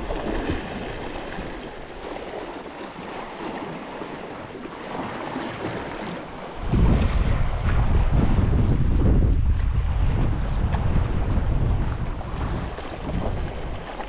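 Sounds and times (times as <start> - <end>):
sea swell washing against rocks: 0.0 - 14.0
wind buffeting microphone: 3.4 - 14.0.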